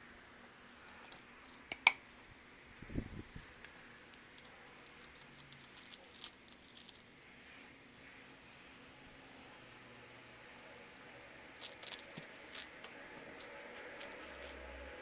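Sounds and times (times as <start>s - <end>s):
metal parts clinking: 4.0s - 7.1s, 11.6s - 12.8s.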